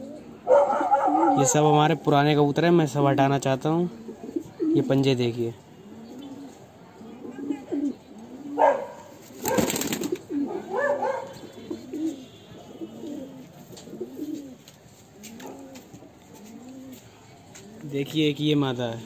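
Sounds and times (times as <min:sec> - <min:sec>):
pigeons cooing: 0:00.0 - 0:01.6, 0:03.9 - 0:05.1, 0:05.8 - 0:14.6, 0:15.2 - 0:17.9
wings flapping: 0:09.2 - 0:10.3.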